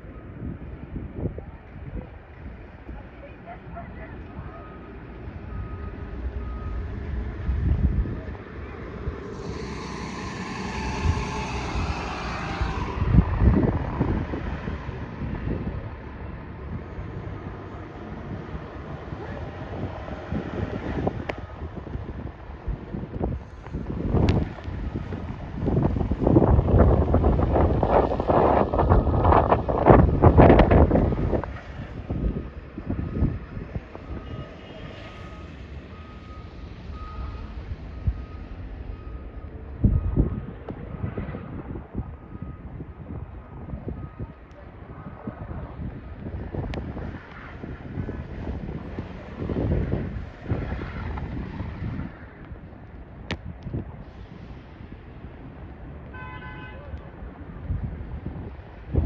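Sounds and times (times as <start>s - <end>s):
wind buffeting microphone: 0.0s - 56.1s, 57.0s - 59.0s
traffic noise: 0.0s - 59.0s
bus passing through slush: 0.1s - 53.2s
electronic reversing beeps: 4.6s - 14.3s, 34.1s - 40.4s.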